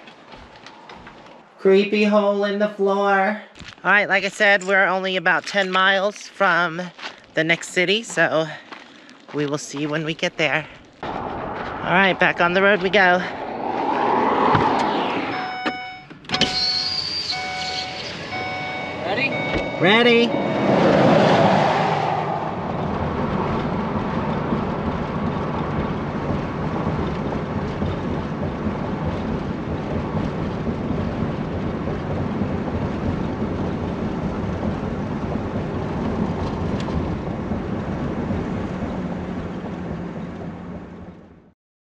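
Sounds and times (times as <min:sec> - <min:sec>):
road and engine noise in cab: 0:00.0 - 0:01.8, 0:12.9 - 0:41.5
vehicle rushing past: 0:11.0 - 0:27.6.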